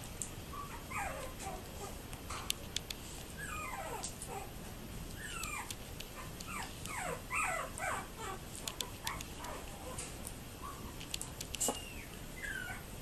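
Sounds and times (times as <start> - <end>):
puppies whimpering and yipping: 0.5 - 2.0, 3.4 - 4.5, 5.2 - 11.0, 11.7 - 13.0.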